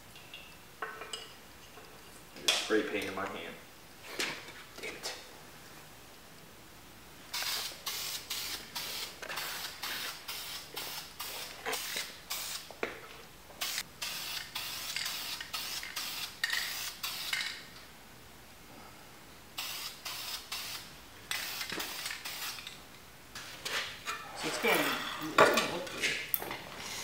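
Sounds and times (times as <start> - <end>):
spray paint can hissing: 7.3 - 12.7, 13.6 - 17.6, 19.6 - 22.6.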